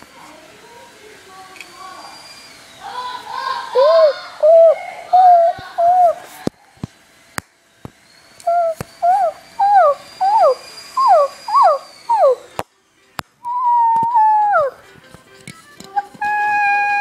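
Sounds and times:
electronic toy animal calls: 0:03.4 - 0:06.2, 0:08.4 - 0:12.6, 0:13.5 - 0:14.8, 0:16.0 - 0:17.0.

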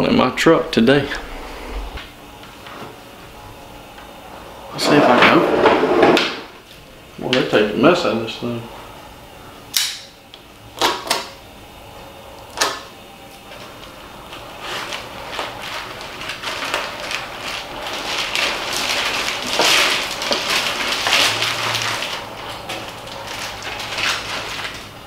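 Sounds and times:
plastic wrapping crinkling and tearing: 0:13.6 - 0:25.0.

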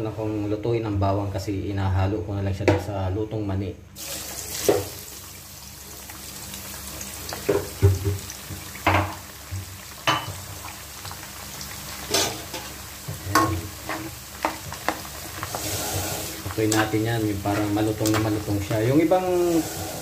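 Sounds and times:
garlic sizzling in hot oil: 0:04.0 - 0:20.0
spatula scraping a pan: 0:13.3 - 0:20.0.

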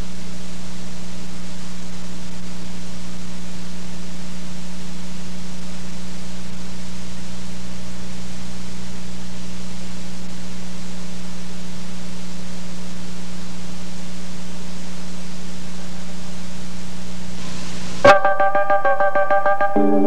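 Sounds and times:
tape hiss: 0:12.2 - 0:20.0.

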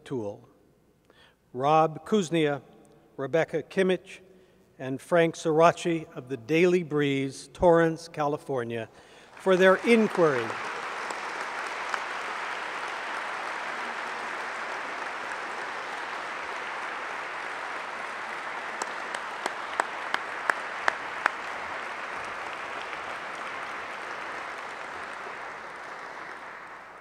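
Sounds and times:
audience applauding: 0:09.3 - 0:27.0
loud nearby hand claps: 0:09.3 - 0:27.0.

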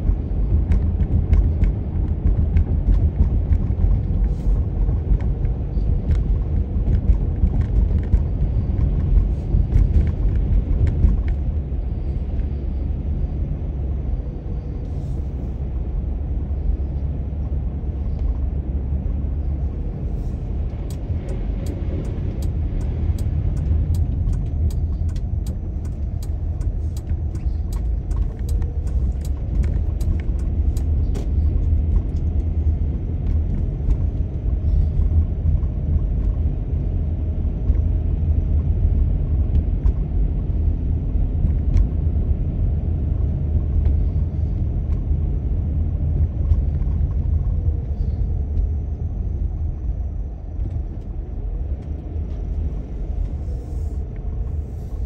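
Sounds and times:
car engine and road noise: 0:00.0 - 0:55.0
light ticks: 0:20.7 - 0:32.5.

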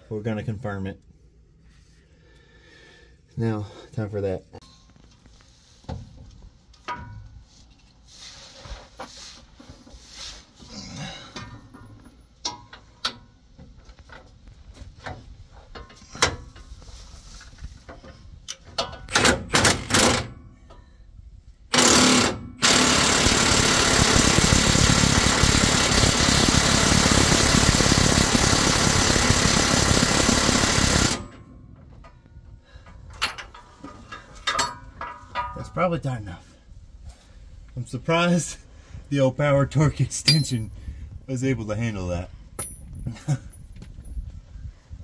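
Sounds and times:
tools clicking and knocking: 0:17.9 - 0:20.8, 0:32.9 - 0:35.6
impact wrench hammering: 0:18.8 - 0:20.4, 0:21.7 - 0:31.4.

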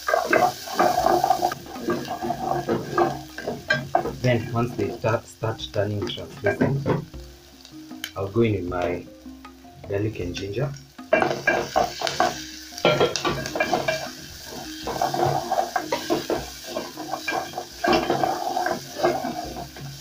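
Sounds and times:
wooden spoon scraping a metal pot: 0:00.0 - 0:05.2, 0:11.1 - 0:20.0
onions sizzling in oil: 0:00.0 - 0:20.0.

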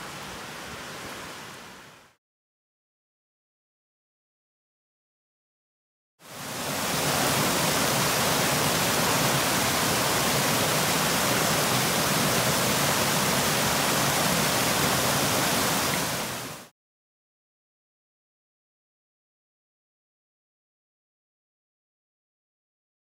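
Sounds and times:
waterfall rushing hiss: 0:00.0 - 0:02.2, 0:06.3 - 0:16.7.

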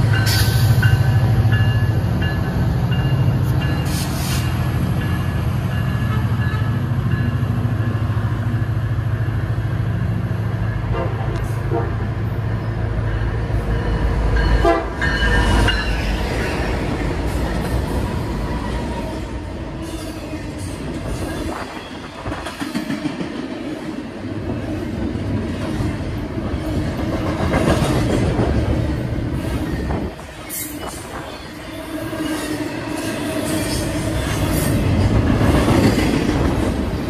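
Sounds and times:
train horn blast: 0:14.6 - 0:15.6.

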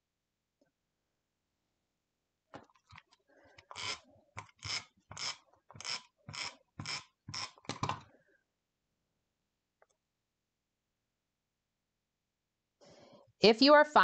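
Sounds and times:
tape runner rasping on paper: 0:02.9 - 0:08.0.

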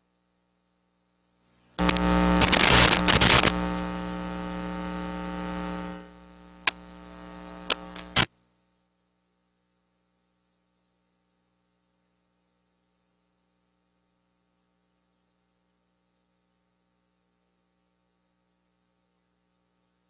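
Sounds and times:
electrical mains hum: 0:01.5 - 0:08.3
crackling static: 0:01.5 - 0:08.4
sharp clicks: 0:01.8 - 0:03.7, 0:06.6 - 0:08.3.

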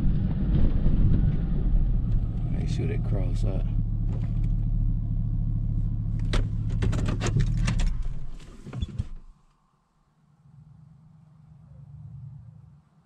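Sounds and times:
engine and tyre rumble: 0:00.0 - 0:09.5
sharp rattles and knocks: 0:06.1 - 0:09.3.

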